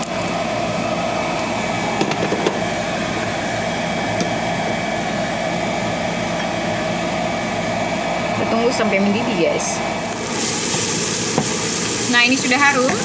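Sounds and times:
kitchen fan whirring hum: 0.0s - 13.0s
broth simmering: 9.9s - 13.0s.

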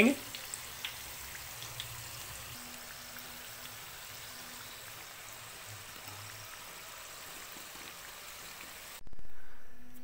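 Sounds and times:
chicken deep-frying in hot oil: 0.0s - 9.0s.

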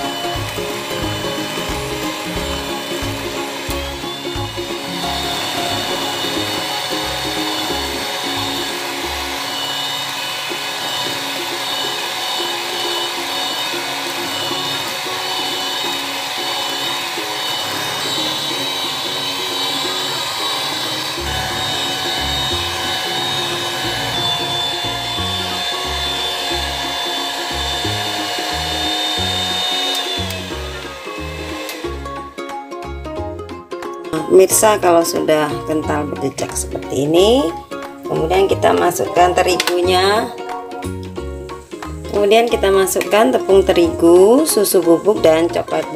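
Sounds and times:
background music with bass line: 0.0s - 9.6s, 17.4s - 45.9s
electric hand mixer whine: 0.0s - 32.5s.

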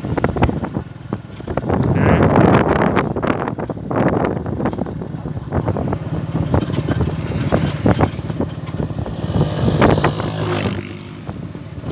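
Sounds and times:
vehicle engine running: 0.0s - 11.9s
wind on microphone: 0.0s - 11.9s
knocks and rattles from bumps: 4.6s - 10.5s.

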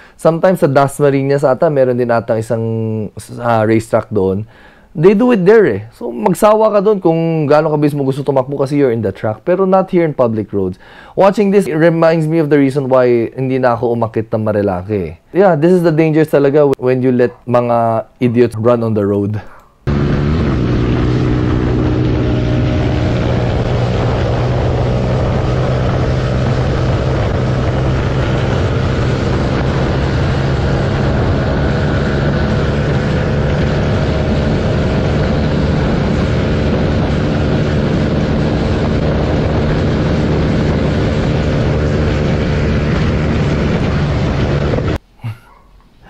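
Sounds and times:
motorcycle engine running hard: 19.9s - 45.0s
road noise: 19.9s - 45.0s
wind noise: 19.9s - 45.0s.

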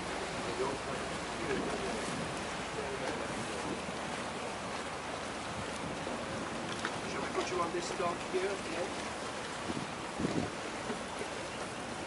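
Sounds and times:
motorboat rushing through water: 0.0s - 12.0s
wind noise on microphone: 1.4s - 2.5s, 5.4s - 7.2s, 9.5s - 11.0s.

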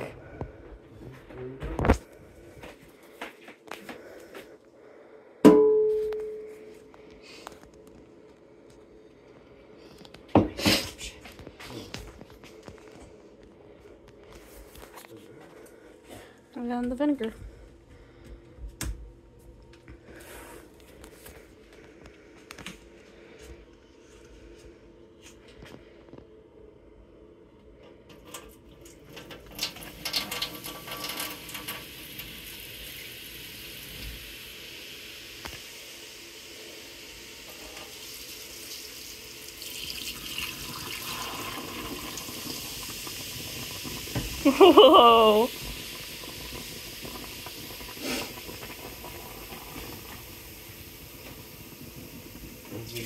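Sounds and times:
faint steady hum: 0.0s - 53.0s
liquid splashing into sink drain: 28.2s - 34.6s, 37.4s - 52.7s.

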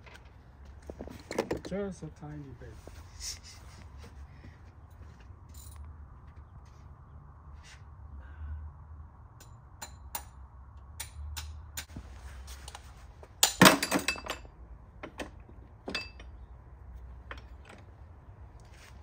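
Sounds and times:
metal tools clinking: 5.4s - 5.9s, 13.4s - 14.6s, 15.8s - 16.4s
rattling metal clanks: 13.4s - 16.4s.

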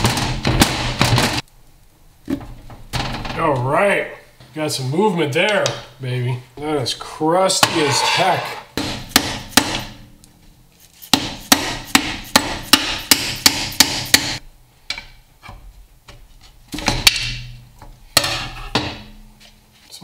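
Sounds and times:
hammer striking cast iron: 8.8s - 10.1s, 11.1s - 15.1s.

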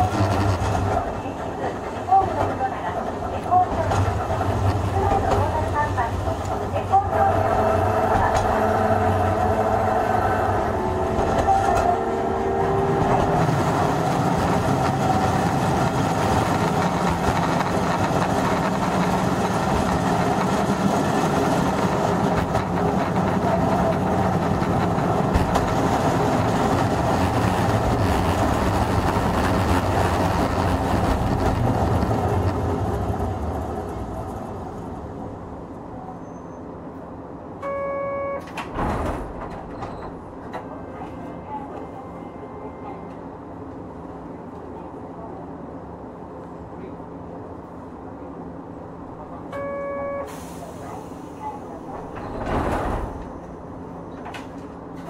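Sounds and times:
wheel and rail noise: 0.0s - 37.1s
tram motor whine: 3.5s - 36.2s.

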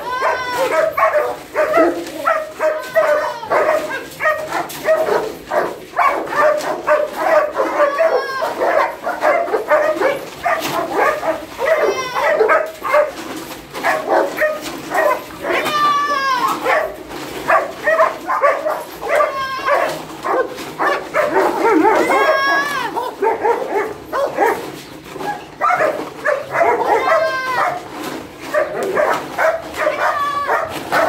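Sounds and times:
dogs barking: 0.0s - 31.0s
dogs whining: 0.0s - 31.0s.

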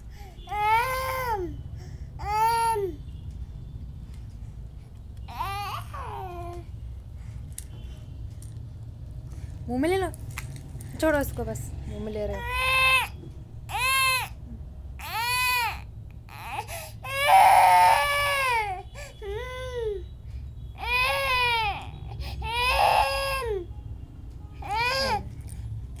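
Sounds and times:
toddler crying: 0.5s - 1.5s, 5.3s - 6.6s, 12.4s - 13.1s, 13.7s - 14.4s, 15.0s - 20.0s, 20.8s - 23.6s, 24.6s - 25.2s.

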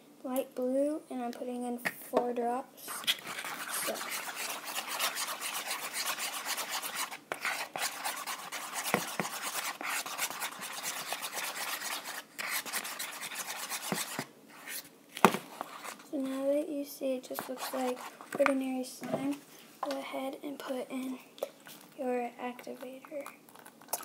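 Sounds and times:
spoon scraping bowl: 2.9s - 14.9s.

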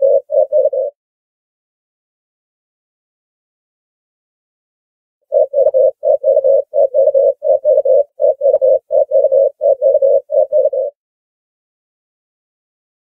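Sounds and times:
dove cooing: 0.0s - 1.0s, 5.3s - 11.0s.

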